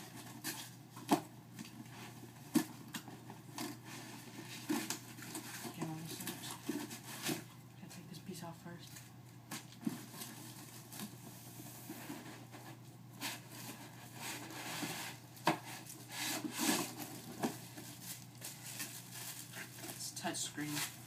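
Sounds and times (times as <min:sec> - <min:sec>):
rustling: 0:00.0 - 0:08.1, 0:08.8 - 0:21.0
cardboard and foam scraping: 0:09.8 - 0:20.0.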